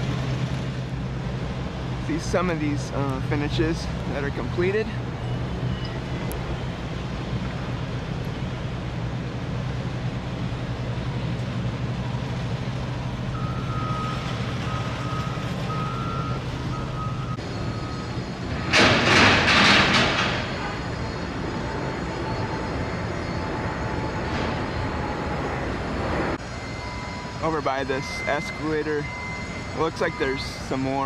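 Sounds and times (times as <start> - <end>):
diesel engine idling: 0.0 - 18.7
reversing alarm beeping: 4.1 - 6.8, 13.3 - 31.0.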